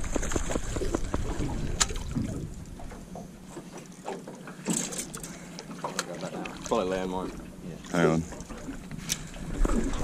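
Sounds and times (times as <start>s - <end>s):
water around boat: 0.0s - 10.0s
wind: 0.0s - 10.0s.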